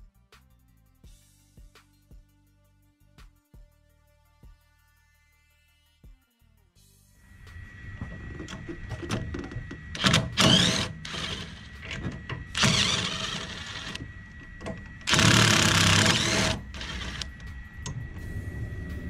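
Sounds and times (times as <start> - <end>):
cordless drill spinning nuts off: 9.0 - 17.5.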